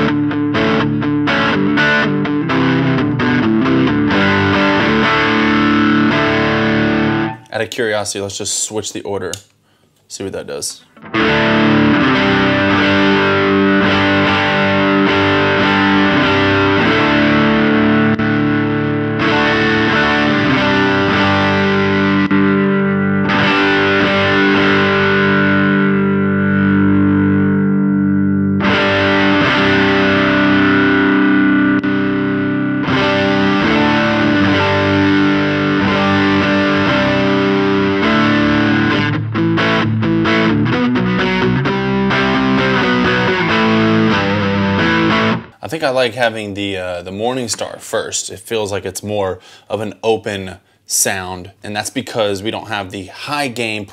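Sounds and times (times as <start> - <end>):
overdriven electric guitar chords: 0.0 - 7.5, 10.9 - 45.6.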